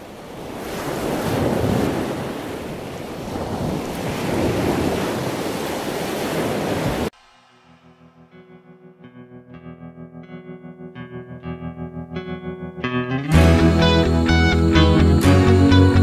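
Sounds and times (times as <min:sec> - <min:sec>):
surf washing over rocks: 0:00.0 - 0:07.7
wind: 0:00.0 - 0:09.1.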